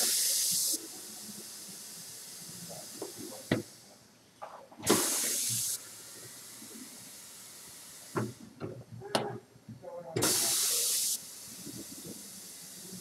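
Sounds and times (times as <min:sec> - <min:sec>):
compressed air hissing: 0:00.0 - 0:03.8, 0:04.8 - 0:08.4, 0:10.2 - 0:13.0.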